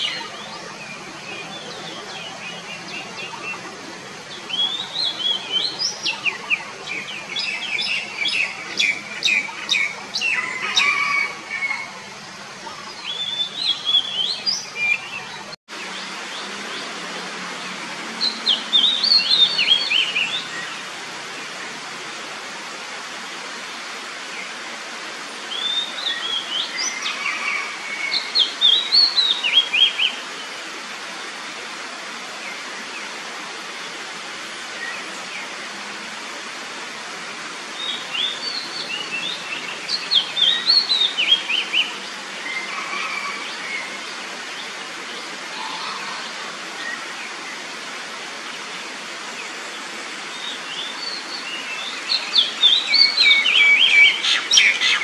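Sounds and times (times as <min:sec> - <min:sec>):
background hiss: 0:00.0 - 0:55.0
bird singing whistled notes: 0:50.4 - 0:55.0.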